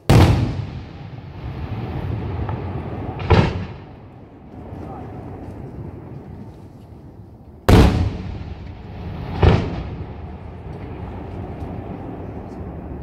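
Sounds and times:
fireworks bursting with rumbling echo: 0.0s - 6.5s, 7.6s - 13.0s.

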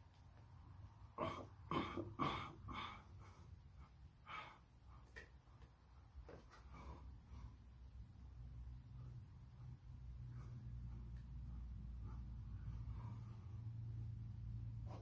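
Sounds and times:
man breathing hard: 1.2s - 5.3s.

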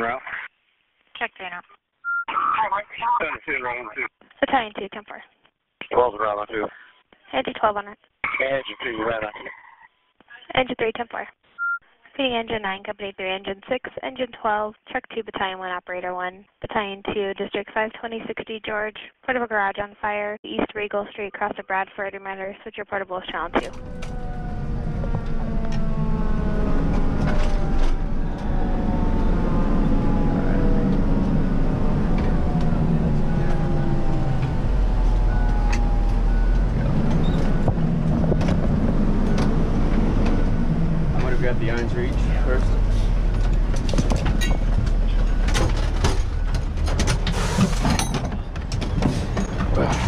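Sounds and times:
heavy engine and road rumble: 23.4s - 50.0s
faint whining siren tones: 23.5s - 46.9s.

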